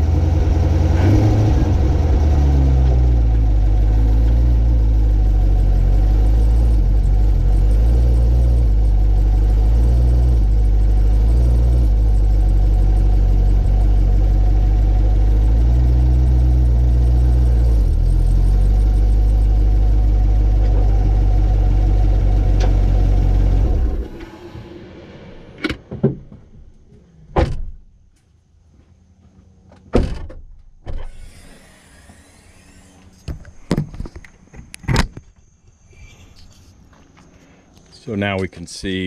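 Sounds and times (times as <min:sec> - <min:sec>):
car engine idling: 0:00.0 - 0:27.0.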